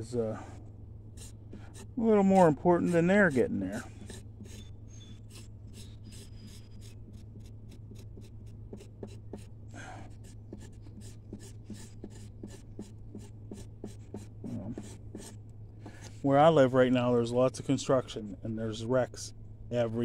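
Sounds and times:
knife scraping leaf on wooden board: 1.2s - 16.2s.

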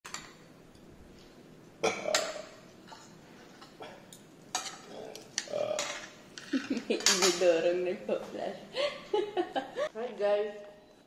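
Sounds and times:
cutlery clinking on a plate: 2.1s - 4.9s, 5.8s - 7.4s.

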